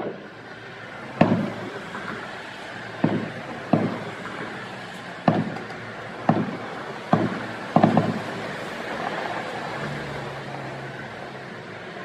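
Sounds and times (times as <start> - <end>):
firework shells booming: 1.1 - 8.6.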